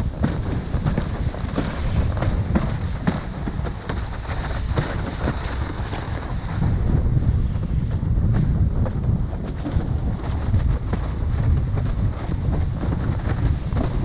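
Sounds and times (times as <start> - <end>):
board knocking on choppy water: 0.0 - 14.0
wind buffeting microphone: 0.0 - 14.0
loud low rush: 4.5 - 14.0.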